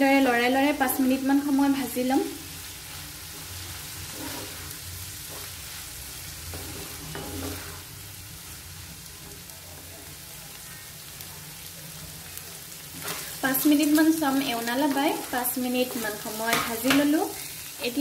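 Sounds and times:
stuffing sizzling in a pan: 0.0s - 18.0s
wooden spatula scraping a pan: 2.8s - 7.9s, 12.9s - 17.5s.

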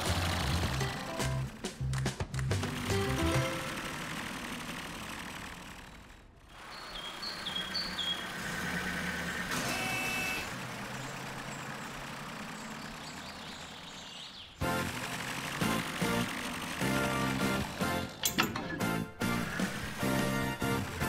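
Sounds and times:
cartoon truck engine rumble: 0.0s - 21.0s.

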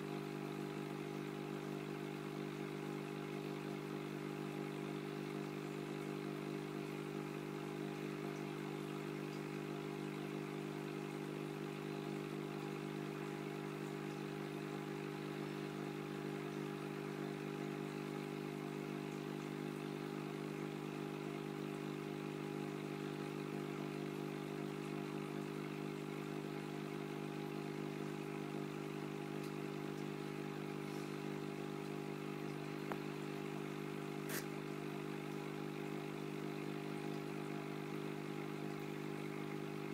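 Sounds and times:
aquarium pump humming: 0.0s - 39.9s.

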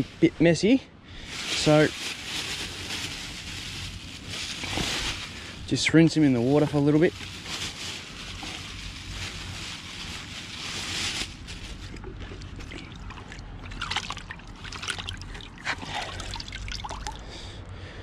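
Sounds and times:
water sloshing in a bucket: 9.6s - 17.2s
small splashes and drips: 12.7s - 17.2s.

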